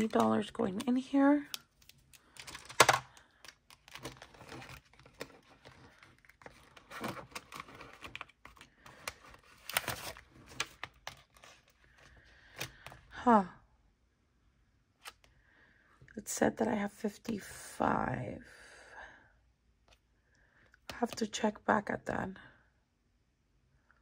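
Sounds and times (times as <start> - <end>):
plastic envelope crinkling: 0.0 - 12.9.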